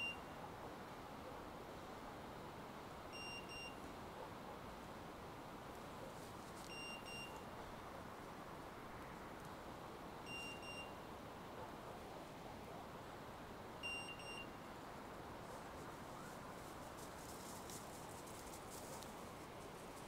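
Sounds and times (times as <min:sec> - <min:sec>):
beeper collar double beeps: 0:00.0 - 0:00.2, 0:03.1 - 0:03.8, 0:06.7 - 0:07.4, 0:10.3 - 0:11.0, 0:13.8 - 0:14.6
faint outdoor hiss: 0:00.0 - 0:20.0.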